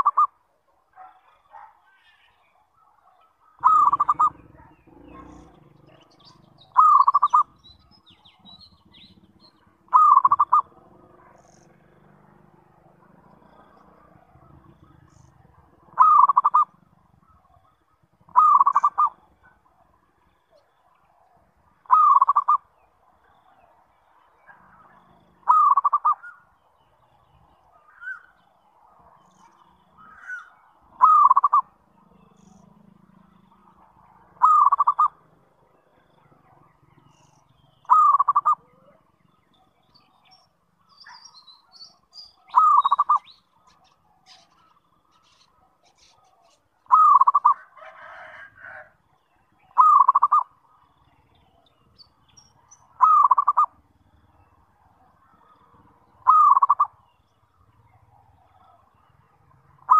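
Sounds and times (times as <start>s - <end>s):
dove cooing: 0.0s - 0.3s, 2.8s - 22.7s, 24.6s - 26.4s, 30.0s - 39.2s, 42.4s - 49.0s, 49.6s - 50.5s, 52.8s - 53.9s, 54.8s - 57.0s, 57.8s - 59.9s.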